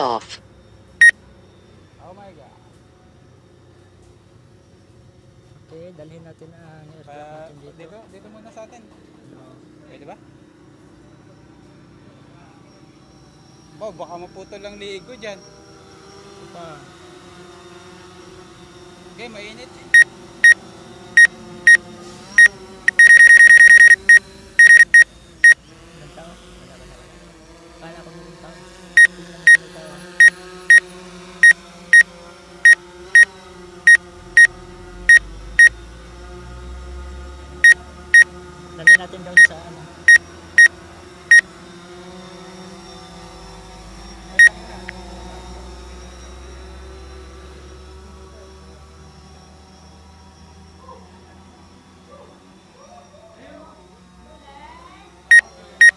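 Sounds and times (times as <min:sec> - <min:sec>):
short high electronic beeps: 0:22.4 - 0:25.0, 0:55.3 - 0:55.9
steady hum: 0:22.4 - 0:25.1.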